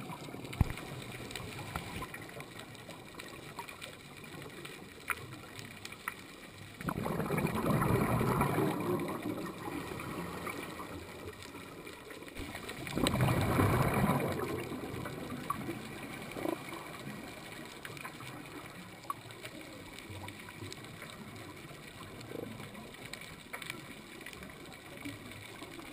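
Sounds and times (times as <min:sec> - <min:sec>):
faint clicks: 0:00.0 - 0:25.9
low steady hiss: 0:00.0 - 0:25.9
underwater breath bubbling: 0:06.8 - 0:11.8, 0:12.4 - 0:19.2.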